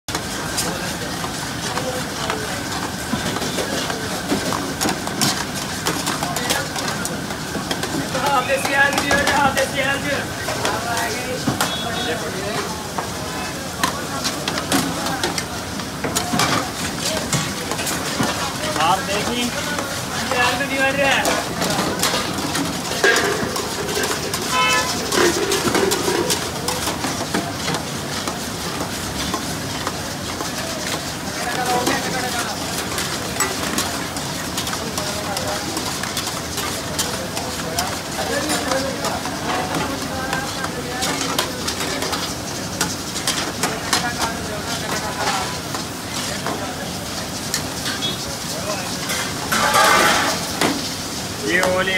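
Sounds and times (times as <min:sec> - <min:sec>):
food sizzling in a wok: 0:00.1 - 0:51.9
gas burner roaring: 0:00.1 - 0:51.9
metal spatula scraping a wok: 0:22.0 - 0:26.8.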